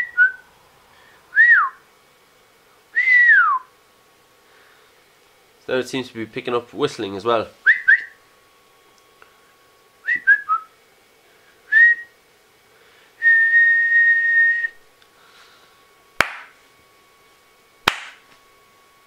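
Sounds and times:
person whistling: 0.0s - 0.4s, 1.3s - 1.8s, 3.0s - 3.7s, 7.7s - 8.2s, 10.1s - 10.7s, 11.7s - 12.1s, 13.2s - 14.8s
hand claps: 16.2s - 16.6s, 17.9s - 18.4s.

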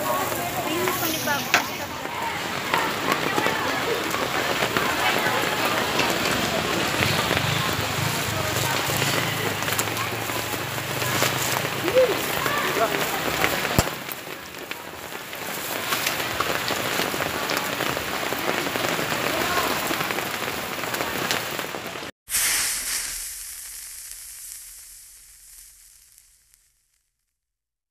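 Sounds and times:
rain hissing on wet street: 0.0s - 26.7s.

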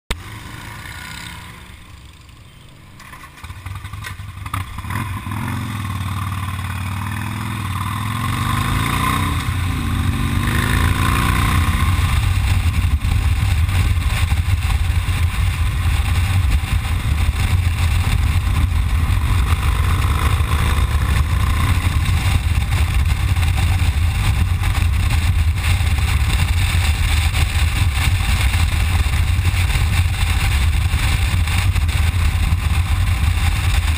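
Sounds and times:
motorcycle engine accelerating: 0.1s - 33.9s
wind rushing over microphone: 7.3s - 33.9s.

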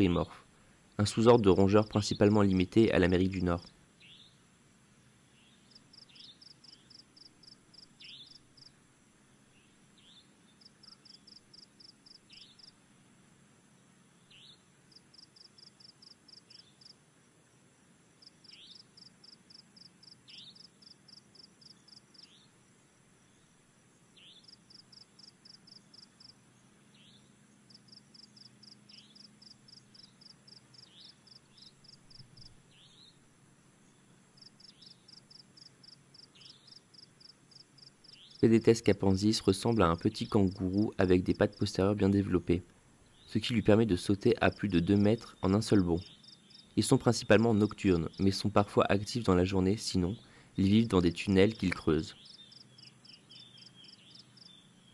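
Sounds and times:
pulsed insect chirping: 10.6s - 12.8s, 27.7s - 33.1s, 33.8s - 38.7s, 44.1s - 48.4s, 52.2s - 54.9s.

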